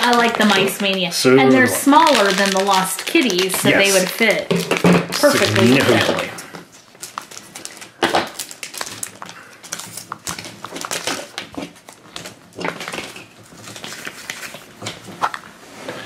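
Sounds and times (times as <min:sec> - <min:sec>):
plastic wrapper crinkling: 0:00.0 - 0:15.6.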